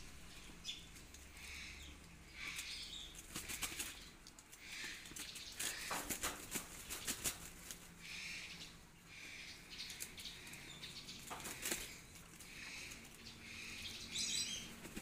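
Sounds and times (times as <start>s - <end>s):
ducks flapping wings: 2.5s - 7.9s, 11.2s - 13.2s, 14.6s - 15.0s.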